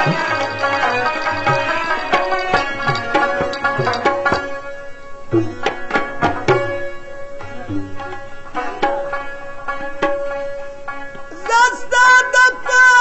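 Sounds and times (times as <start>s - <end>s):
tabla strokes: 0.0s - 11.6s
plucked string instrument: 0.0s - 13.0s.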